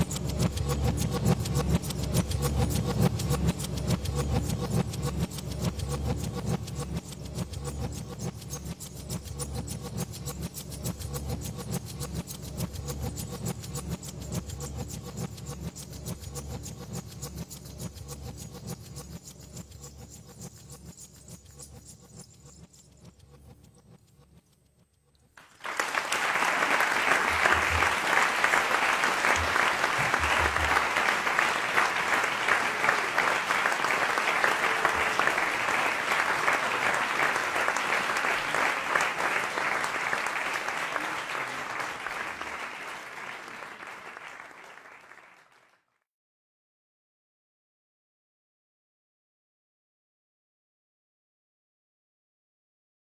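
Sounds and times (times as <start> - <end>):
audience applause: 25.4 - 45.8.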